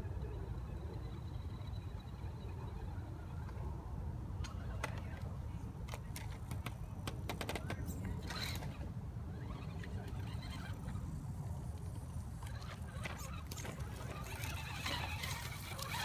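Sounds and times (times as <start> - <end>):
low motor rumble: 0.0 - 16.0
twigs and leaves crackling: 12.6 - 16.0.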